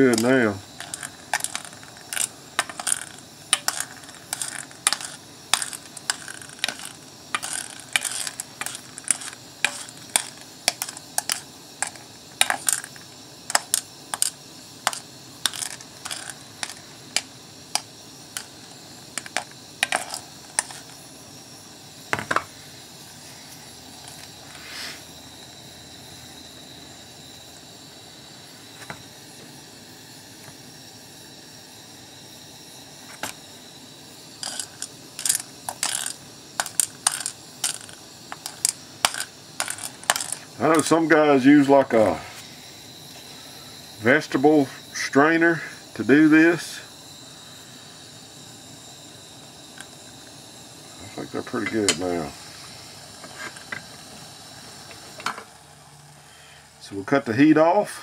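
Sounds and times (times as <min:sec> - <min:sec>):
solution fizzing hiss: 0:00.0 - 0:58.0
sharp metallic ticks and clicks: 0:00.1 - 0:18.6, 0:19.2 - 0:21.0, 0:34.4 - 0:41.0.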